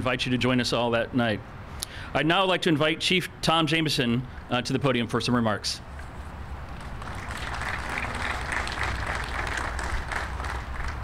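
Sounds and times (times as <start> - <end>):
crowd applauding: 6.8 - 11.0.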